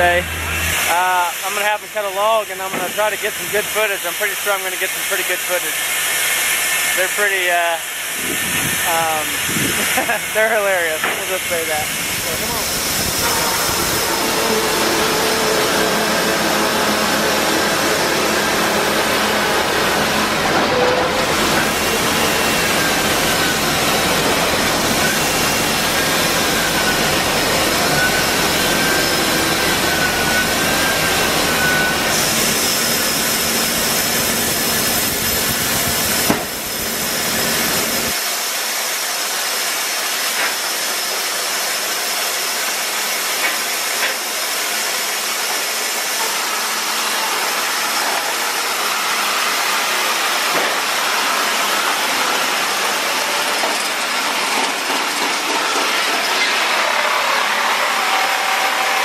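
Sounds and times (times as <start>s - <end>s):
sawmill machinery running: 0.0s - 59.0s
sharp knock: 36.3s - 36.6s.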